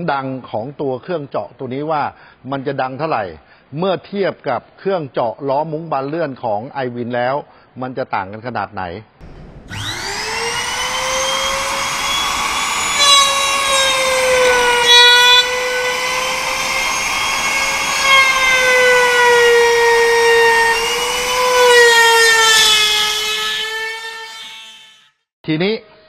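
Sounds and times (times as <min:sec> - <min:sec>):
router motor whining: 0:09.2 - 0:25.1.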